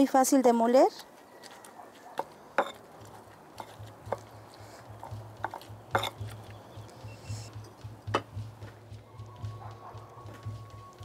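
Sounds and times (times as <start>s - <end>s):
stone knocking against clay: 2.2s - 6.8s
pestle crushing and squishing: 2.2s - 8.4s.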